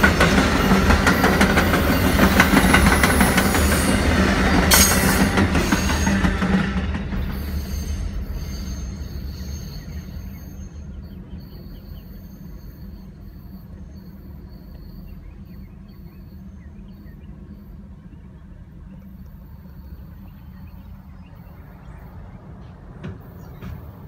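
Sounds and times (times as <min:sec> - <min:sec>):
train wheels squealing: 0:00.0 - 0:16.6
train rumbling past: 0:00.0 - 0:24.0.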